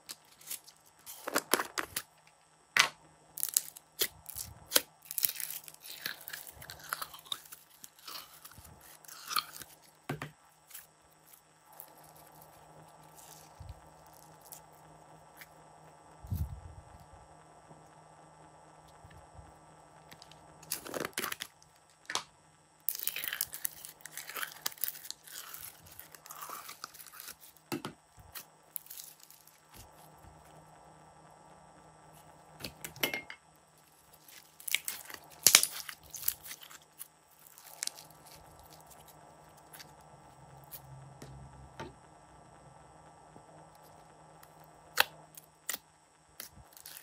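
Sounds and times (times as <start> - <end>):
slime crackling and popping: 3.4 - 10.0, 10.6 - 15.6, 20.0 - 30.5, 33.8 - 40.0, 43.8 - 47.0.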